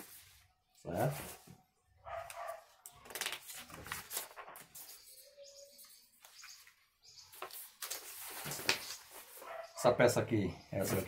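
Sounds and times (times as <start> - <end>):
paper rustling and crackling: 2.2 - 5.2, 6.2 - 9.6.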